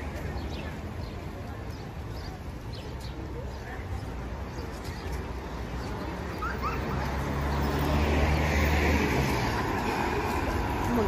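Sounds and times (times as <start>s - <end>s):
vehicle passing on road: 5.4s - 11.0s.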